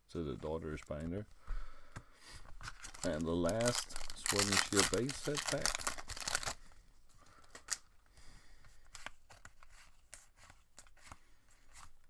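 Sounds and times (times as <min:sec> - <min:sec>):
foil wrapper ripping: 0:02.8 - 0:06.6
cards sliding: 0:08.9 - 0:12.0.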